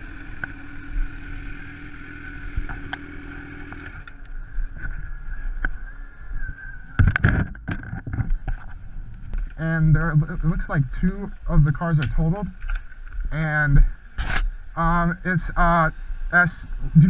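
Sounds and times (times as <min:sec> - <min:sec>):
motorcycle engine running: 0:00.0 - 0:07.4
road and wind noise: 0:00.0 - 0:17.0.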